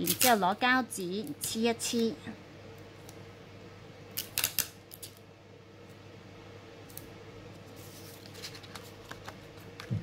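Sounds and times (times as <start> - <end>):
tape torn off a roll: 4.1 - 5.2
faint paper handling: 7.6 - 9.9.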